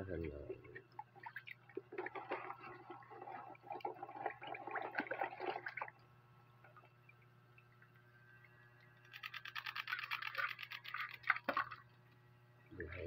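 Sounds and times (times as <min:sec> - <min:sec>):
faint low hum: 0:00.0 - 0:13.0
hand splashing water in a basin: 0:09.7 - 0:11.9.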